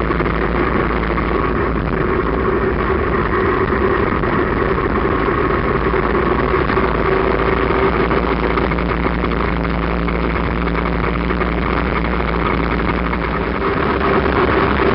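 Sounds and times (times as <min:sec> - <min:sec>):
motorcycle engine running: 0:00.0 - 0:14.9
wind rushing: 0:10.2 - 0:14.9.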